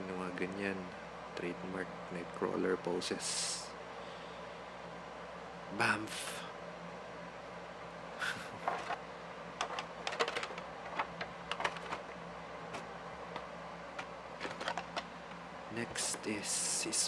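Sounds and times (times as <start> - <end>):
plastic toy and packaging clicks: 9.6 - 12.0, 14.0 - 15.1.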